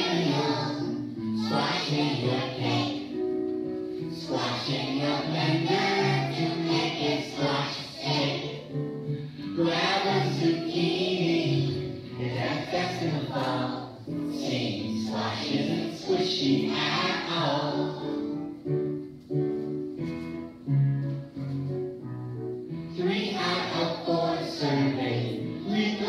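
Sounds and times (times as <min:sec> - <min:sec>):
children's choir singing: 0:00.0 - 0:18.6, 0:22.9 - 0:26.0
instrumental accompaniment: 0:00.0 - 0:26.0.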